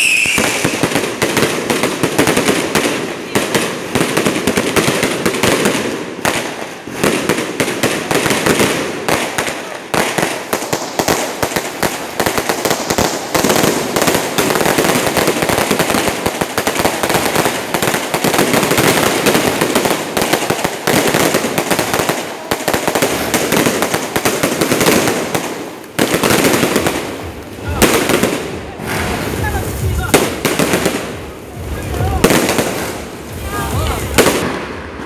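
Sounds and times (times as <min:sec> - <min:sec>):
fireworks banging and crackling: 0:00.0 - 0:35.0.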